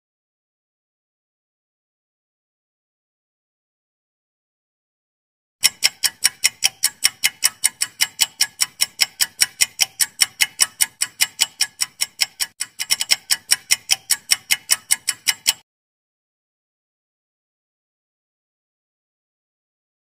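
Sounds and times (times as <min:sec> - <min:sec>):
clock ticking: 0:05.6 - 0:15.6.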